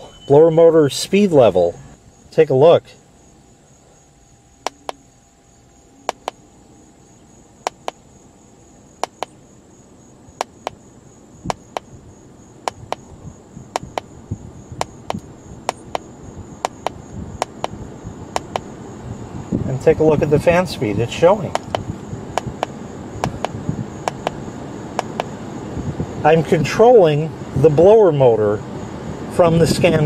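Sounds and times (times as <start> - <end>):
keypad button clicks: 4.7 - 5.0, 6.1 - 6.4, 9.0 - 9.3, 16.6 - 17.8, 18.4 - 18.6, 22.4 - 24.4, 25.0 - 25.3.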